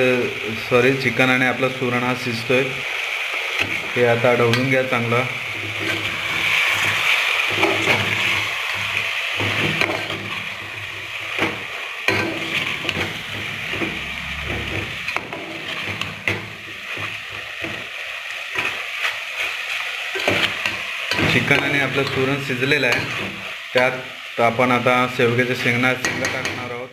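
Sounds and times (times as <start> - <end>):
curry sizzling: 0.0 - 26.9
spoon scraping metal pot: 5.6 - 11.5, 12.1 - 16.7.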